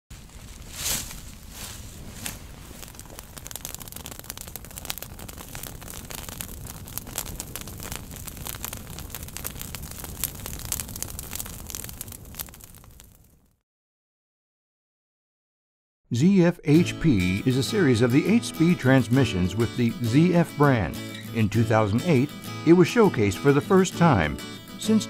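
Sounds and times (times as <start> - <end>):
fire crackling: 0.1 - 13.6.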